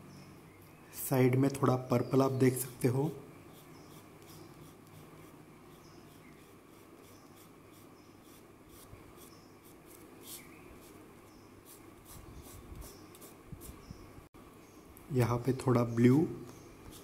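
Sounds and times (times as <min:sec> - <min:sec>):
pastel scratching on paper: 0:03.5 - 0:11.0.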